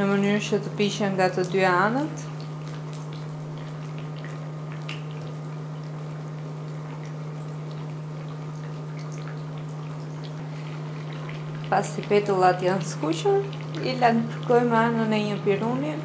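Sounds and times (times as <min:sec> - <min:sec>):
constant low hum: 0:00.0 - 0:16.0
dough frying in oil: 0:00.0 - 0:16.0
oil popping and crackling: 0:02.2 - 0:14.7.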